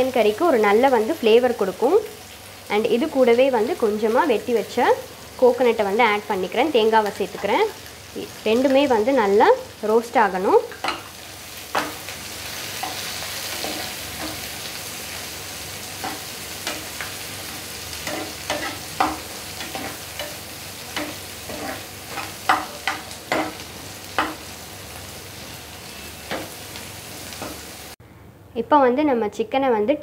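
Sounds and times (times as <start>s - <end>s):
food sizzling in hot oil: 0.0s - 28.0s.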